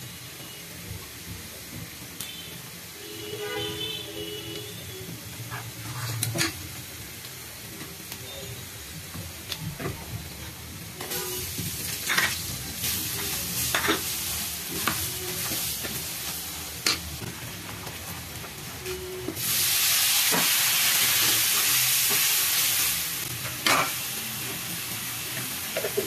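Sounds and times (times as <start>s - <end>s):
onions sizzling in hot oil: 0.0s - 26.0s
metal spoon scraping a wok: 5.5s - 6.6s, 12.0s - 12.5s.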